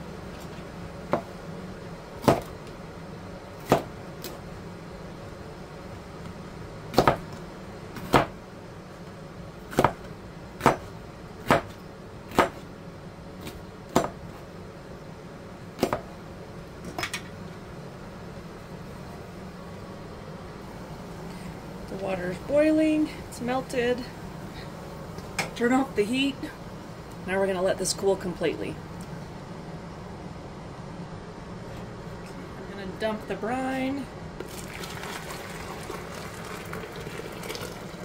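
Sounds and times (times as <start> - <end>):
knife chopping on cutting board: 2.2 - 2.5, 3.6 - 3.9, 6.9 - 7.3, 8.0 - 8.3, 9.7 - 10.0, 10.6 - 12.6, 13.4 - 14.2, 15.8 - 16.1.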